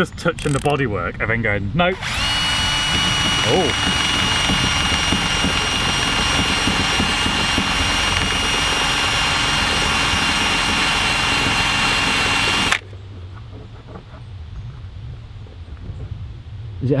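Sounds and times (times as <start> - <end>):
cordless drill whining: 0.4 - 0.7, 1.9 - 12.8.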